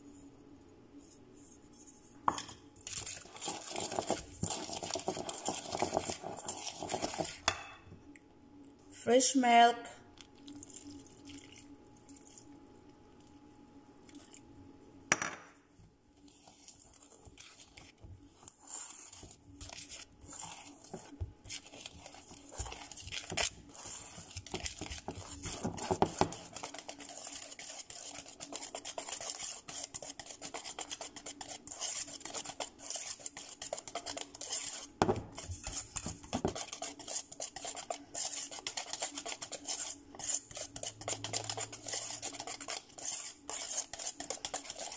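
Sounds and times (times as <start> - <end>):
whisk clattering in metal bowl: 21.6 - 44.9.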